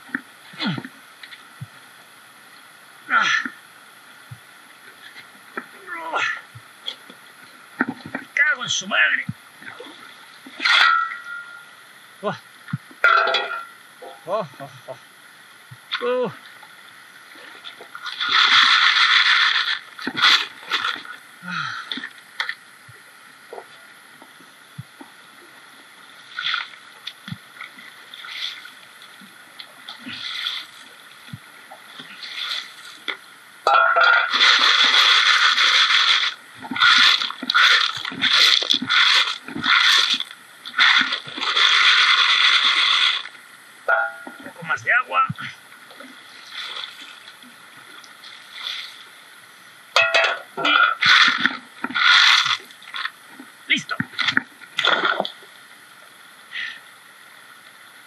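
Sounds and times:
faint river hiss: 0:00.0 - 0:58.0
shovel scraping gravel: 0:33.7 - 0:43.3, 0:50.2 - 0:52.6.

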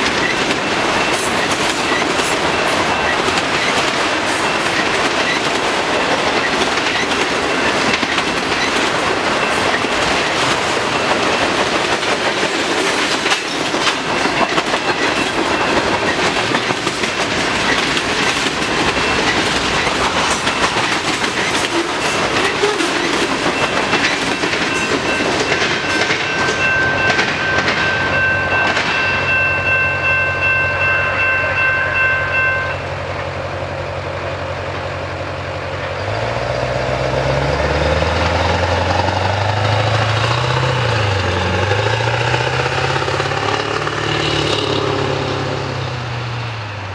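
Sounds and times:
train wheels clicking over rail joints: 0:00.0 - 0:31.6, 0:34.3 - 0:46.6
high steady ringing tones: 0:23.0 - 0:33.4.

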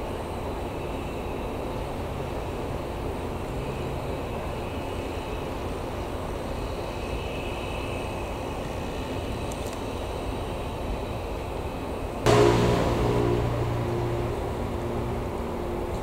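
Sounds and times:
electric train running: 0:12.3 - 0:16.0.

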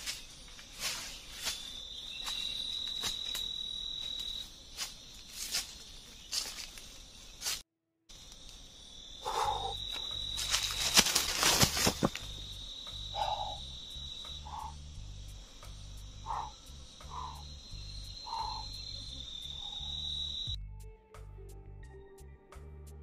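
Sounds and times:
high-pitched insect drone: 0:00.0 - 0:07.5, 0:08.1 - 0:20.6
crackling and rustling: 0:10.3 - 0:12.4
soft background music: 0:20.5 - 0:23.0.

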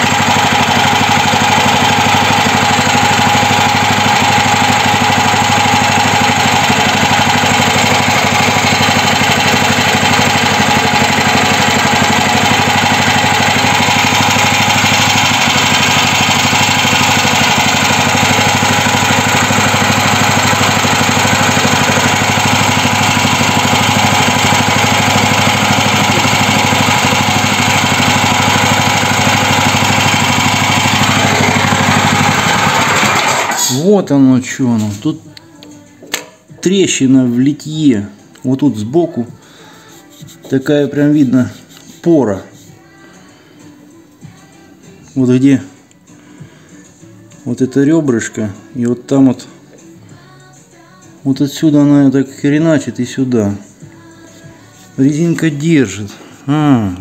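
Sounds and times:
petrol engine idling: 0:00.0 - 0:33.8.

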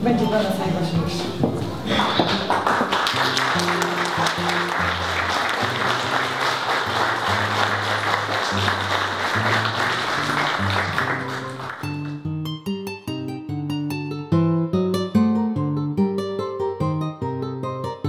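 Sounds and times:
audience applauding: 0:01.9 - 0:12.2.

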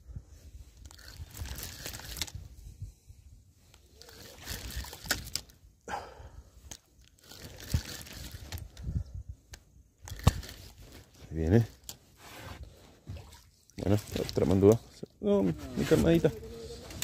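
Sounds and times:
sleeve rubbing on microphone: 0:12.1 - 0:13.2, 0:15.4 - 0:17.0.

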